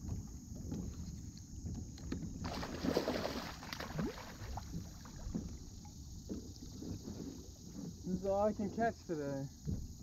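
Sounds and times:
water splashing: 2.4 - 8.8.

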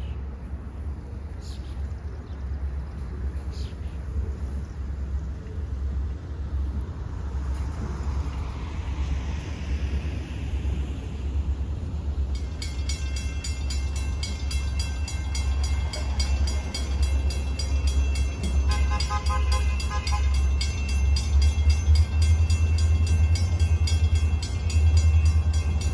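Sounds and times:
low rumble: 0.0 - 18.7
railroad crossing bell ringing: 12.2 - 25.9.

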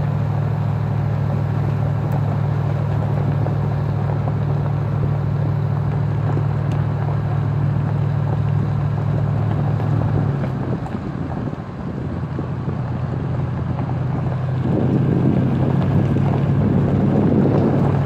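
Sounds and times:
car engine drone: 0.0 - 18.0
tyres rumbling on gravel: 0.0 - 18.0.

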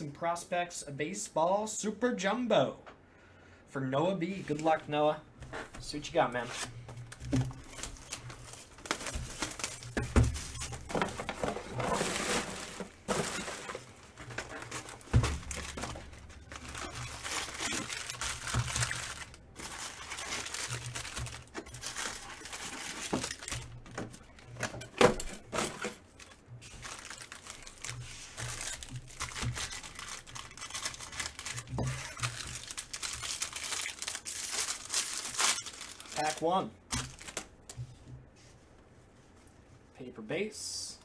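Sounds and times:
plastic wrap crinkling and tearing: 6.5 - 37.8.

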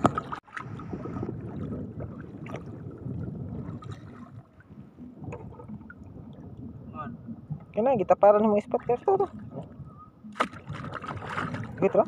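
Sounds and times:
seawater sloshing from wading: 8.5 - 12.0.

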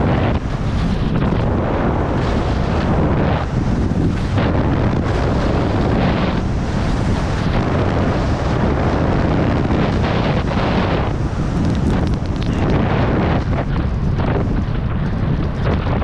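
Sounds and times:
skis sliding over snow: 0.0 - 16.0
wind buffeting microphone: 0.0 - 16.0.

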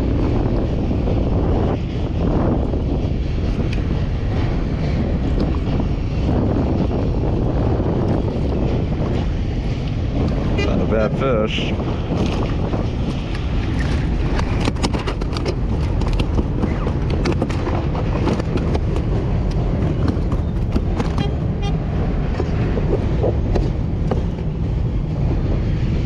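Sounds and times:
wind buffeting microphone: 0.0 - 26.0
handling clicks and knocks: 13.1 - 21.3.

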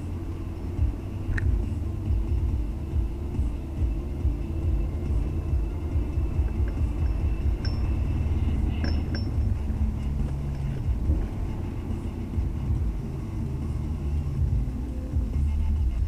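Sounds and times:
car engine and road noise: 0.0 - 16.0
light clinks: 6.0 - 10.9.

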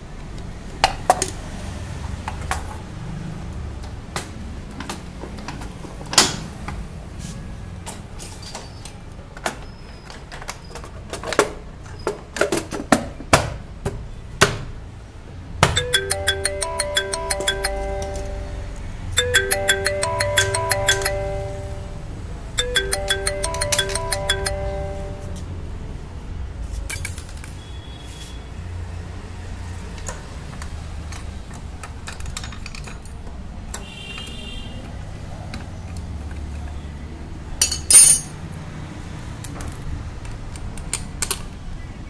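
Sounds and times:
phone ringtone melody: 15.7 - 25.5
metal tools clinking: 26.9 - 27.6, 37.6 - 38.7.

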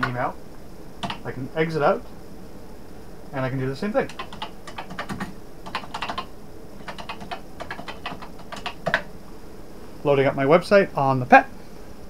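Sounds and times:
keyboard typing: 1.0 - 1.3, 4.0 - 9.1.

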